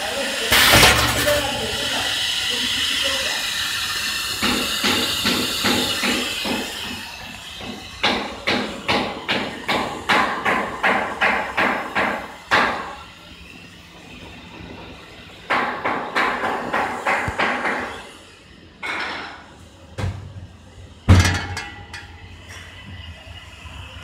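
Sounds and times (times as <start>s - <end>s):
pneumatic air hiss: 0.1s - 9.8s
machine clacking sharply: 0.5s - 2.4s.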